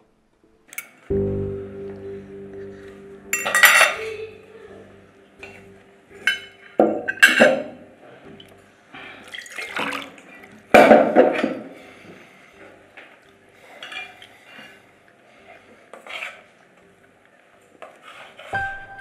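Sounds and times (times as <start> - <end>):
tableware clinking: 3.3 - 4.3, 5.4 - 7.8, 13.7 - 14.2
water pouring into glass: 9.2 - 10.5.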